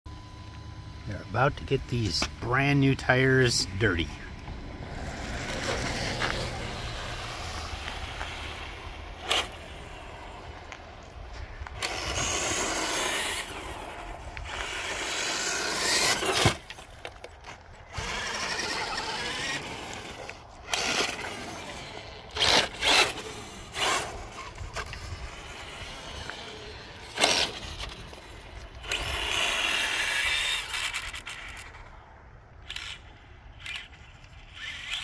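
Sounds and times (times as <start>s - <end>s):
electric motor whining: 0.4s - 31.8s
tyres scrubbing on concrete and snow: 5.0s - 10.4s, 11.8s - 17.0s.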